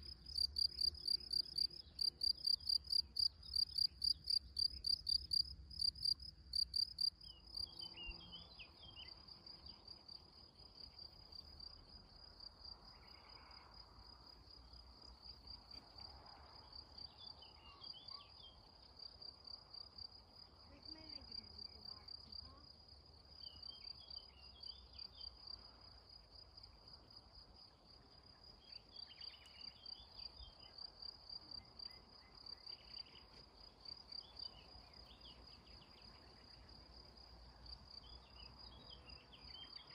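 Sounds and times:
bird song: 0.0 - 11.9, 12.8 - 13.8, 14.6 - 19.2, 23.3 - 25.7, 26.7 - 39.9
crickets chirping: 0.0 - 39.9.

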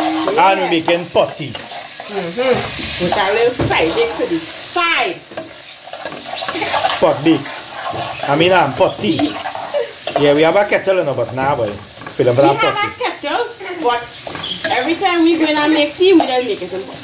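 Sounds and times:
metal spoon stirring and scraping: 0.0 - 12.9, 13.7 - 17.0
vegetables sizzling in oil: 0.0 - 17.0.

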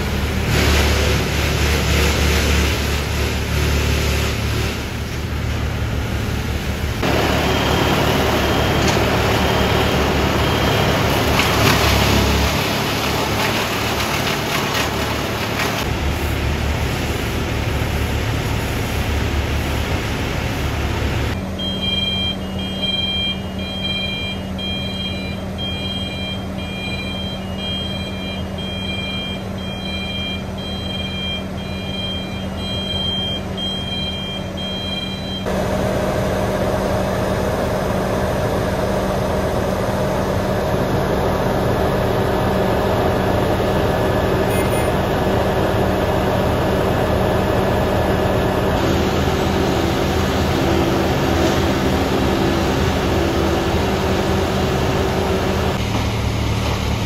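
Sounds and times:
heavy engines idling: 0.0 - 57.0
short high beeps: 21.6 - 35.4.

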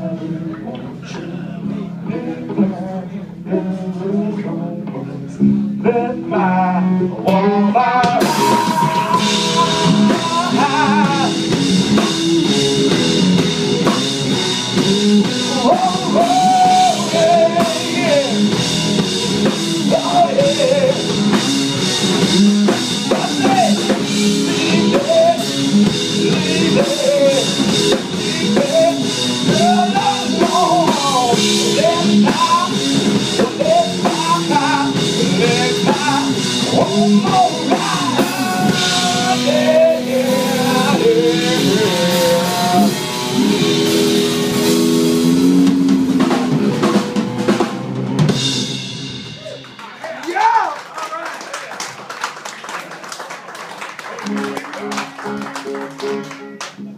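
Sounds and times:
electric bass: 0.0 - 49.6
distorted electric guitar: 0.0 - 50.0, 54.2 - 56.9
drum kit with cymbals: 8.0 - 50.6.

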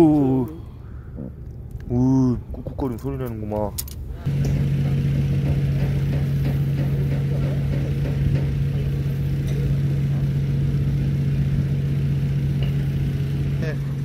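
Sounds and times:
engine idling: 4.3 - 14.0.

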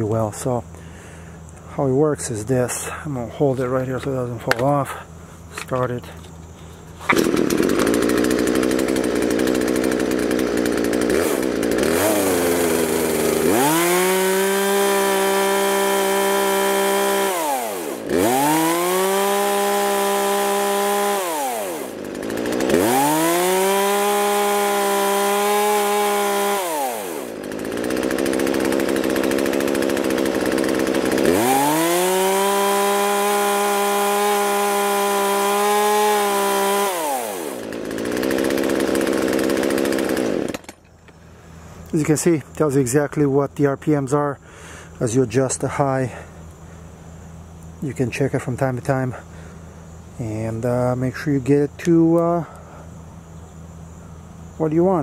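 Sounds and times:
chainsaw engine revving: 6.9 - 40.8.

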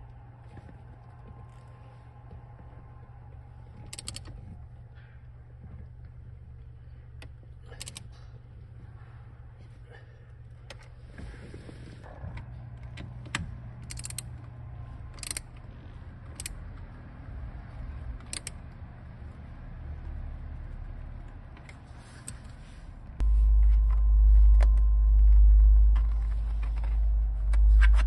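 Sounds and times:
loud low rumble: 23.1 - 28.0.

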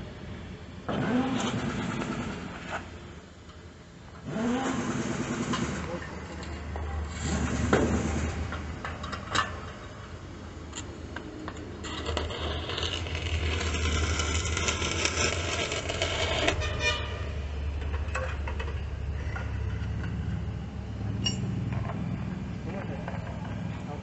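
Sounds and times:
welding arc crackling and hissing: 10.6 - 16.7.

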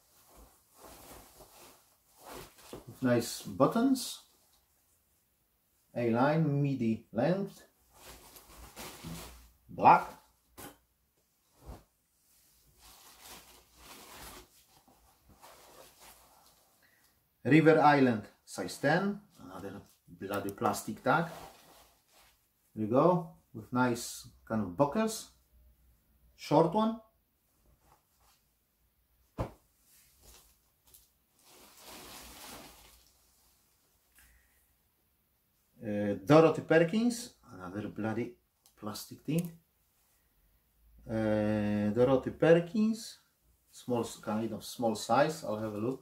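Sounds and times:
fabric rustling: 0.0 - 3.0, 7.8 - 9.6, 11.4 - 16.8, 21.0 - 22.5, 29.2 - 34.1.

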